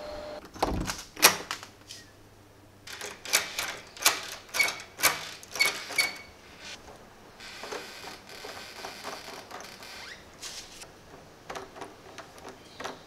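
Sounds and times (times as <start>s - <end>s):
door knob metallic clicks and rattles: 2.9s - 6.3s.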